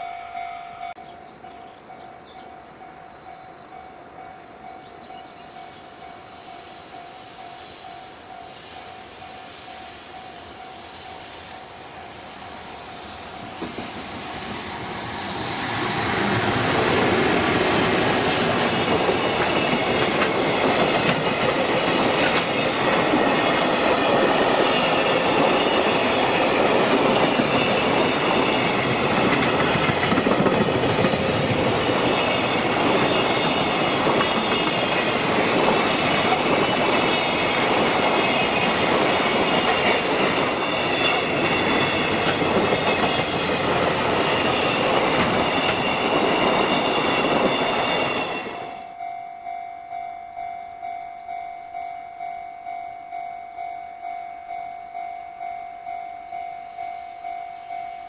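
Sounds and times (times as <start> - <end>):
train wheels clattering over rails: 11.0 - 48.7
high-pitched steady tones: 31.8 - 58.0.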